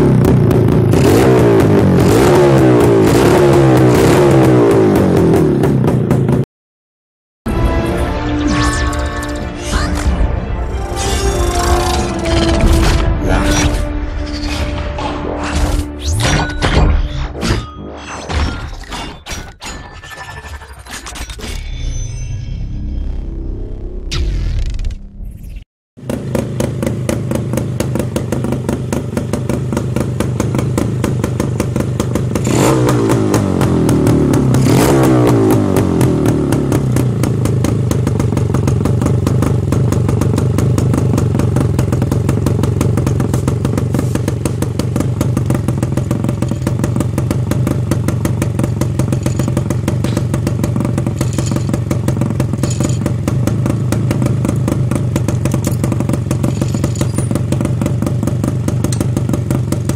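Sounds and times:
motorcycle engine idling and revving: 0.0 - 6.5, 26.0 - 59.9.

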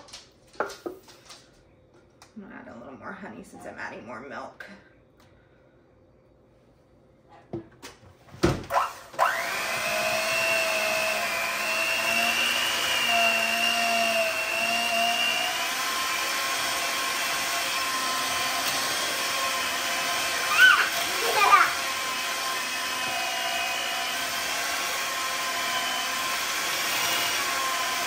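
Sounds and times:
electric hand mixer whining: 8.7 - 28.0.

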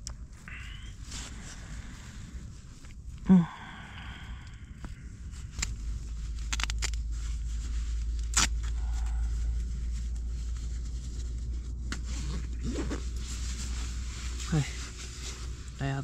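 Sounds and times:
low rumble: 0.0 - 16.0
sleeping bag rustling: 4.8 - 16.0.

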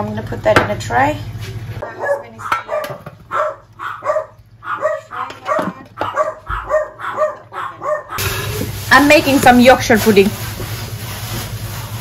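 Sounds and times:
small dog barking: 1.8 - 8.2.

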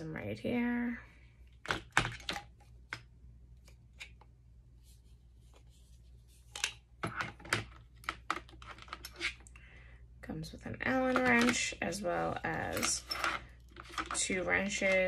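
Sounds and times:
metal parts clicking in plastic case: 12.6 - 15.0.

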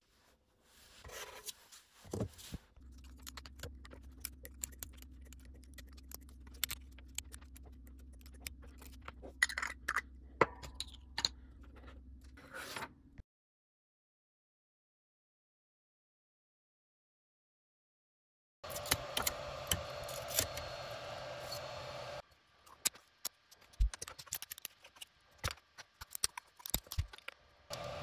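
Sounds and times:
plastic parts clicking and tapping: 22.7 - 27.8.

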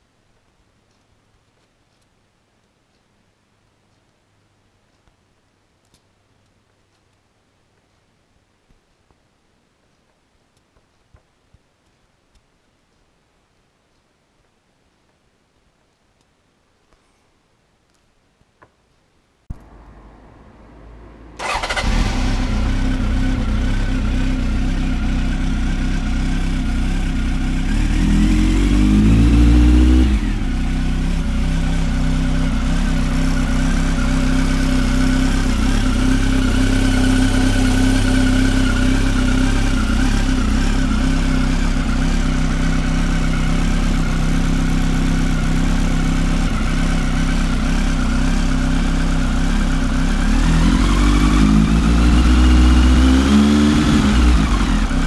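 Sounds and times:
motorcycle engine idling and revving: 19.5 - 55.0.

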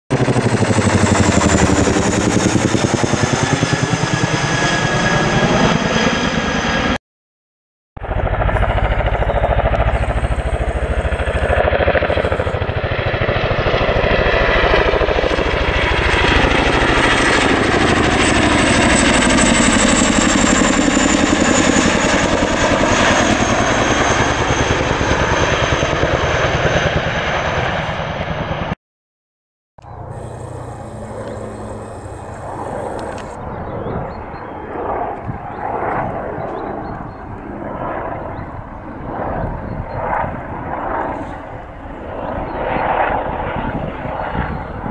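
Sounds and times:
helicopter rotor thump: 8.0 - 15.8, 29.8 - 33.4
turbine whine: 8.0 - 24.7, 29.8 - 44.9.

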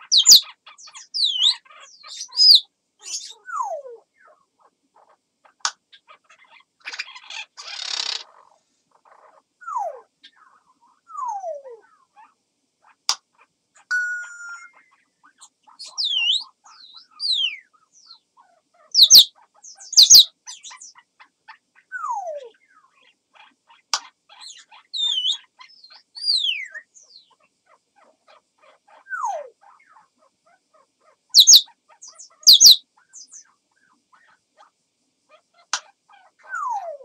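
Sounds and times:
parrot whistles gliding: 13.9 - 14.9, 31.4 - 31.6, 32.5 - 32.8.

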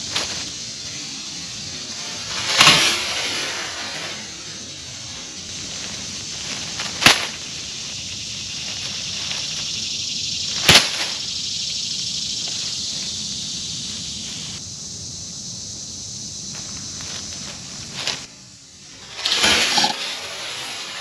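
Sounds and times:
crackles of dry pine needles: 0.0 - 1.2, 4.6 - 14.6, 16.5 - 18.4
high insect chorus: 0.0 - 21.0.

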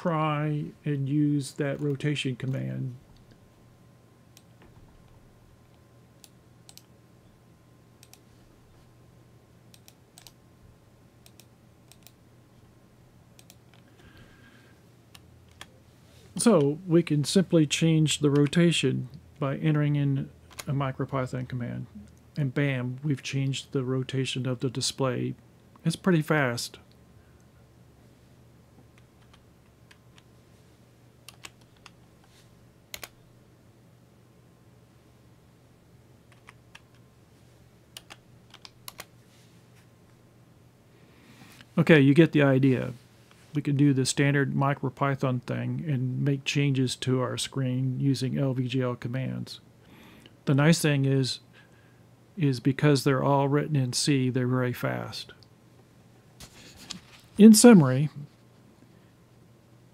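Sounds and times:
low steady hum: 0.0 - 59.9
computer mouse clicks: 6.2 - 6.9, 8.0 - 8.2, 9.7 - 10.4, 11.2 - 12.2, 13.4 - 13.8, 31.2 - 32.0, 32.9 - 33.2, 38.0 - 39.1
keyboard keystrokes: 32.9 - 33.1.

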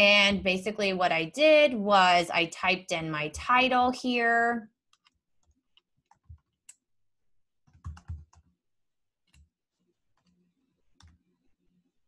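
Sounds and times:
computer keyboard keystrokes: 4.9 - 6.8, 7.7 - 8.5.

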